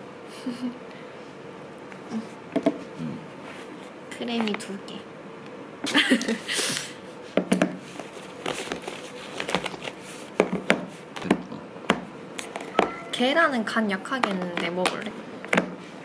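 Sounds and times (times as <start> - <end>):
plastic film crinkling: 7.9 - 10.4.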